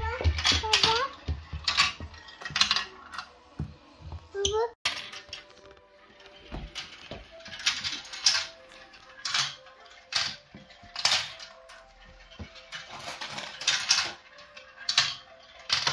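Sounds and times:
marbles rattling down plastic tracks: 0:12.6 - 0:15.9.

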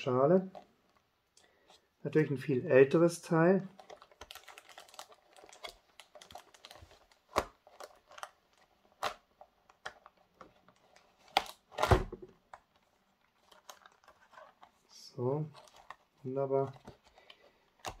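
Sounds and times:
plastic packaging crinkling: 0:03.6 - 0:18.0.

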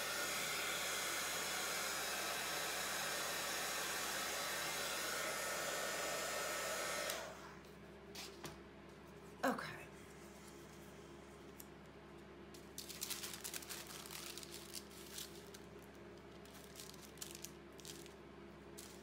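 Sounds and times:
paper rustling and crinkling: 0:12.6 - 0:18.2.

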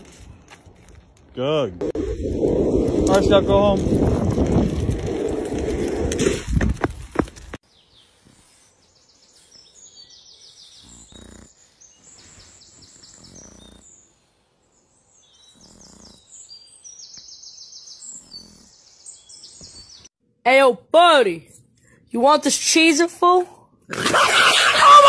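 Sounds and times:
wind on microphone: 0:01.8 - 0:07.1
small birds chirping: 0:07.6 - 0:20.2.

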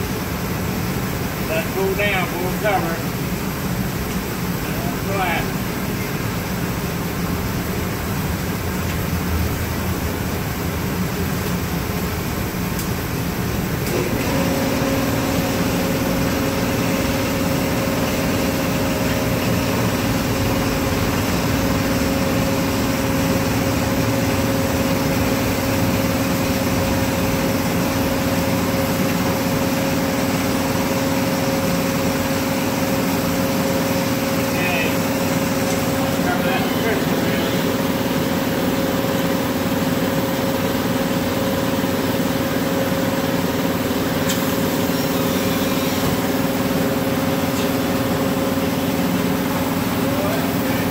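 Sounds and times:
gas furnace and blowers roaring: 0:00.0 - 0:50.9
machine hum: 0:00.0 - 0:50.9.

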